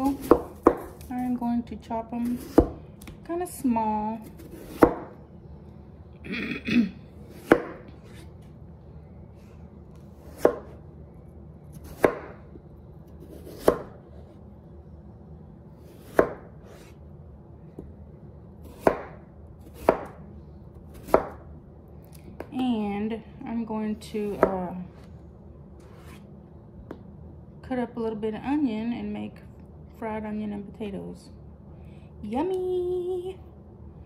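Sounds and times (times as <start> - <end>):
knife chopping potatoes: 0.0 - 1.4, 2.1 - 3.2, 4.2 - 5.2, 7.3 - 8.2, 10.2 - 10.8, 11.7 - 12.5, 13.1 - 14.0, 15.9 - 16.9, 18.6 - 20.2, 20.8 - 21.4, 24.1 - 24.8.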